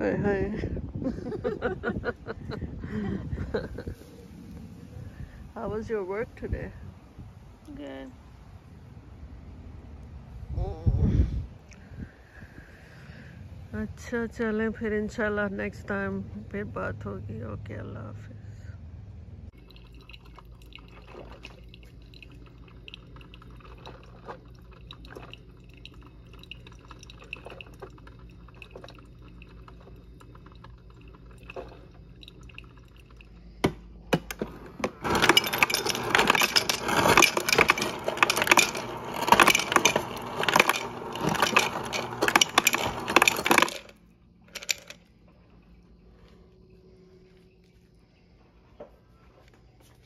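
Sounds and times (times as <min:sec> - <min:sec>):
coffee maker humming and gurgling: 0:19.5 - 0:46.7
ice cubes clattering into mug: 0:19.6 - 0:32.8, 0:34.8 - 0:45.0.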